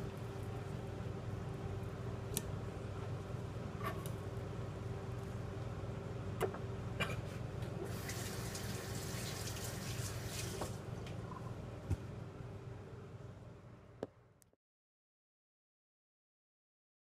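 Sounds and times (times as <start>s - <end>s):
steady low hum: 0.0s - 7.9s, 10.7s - 14.4s.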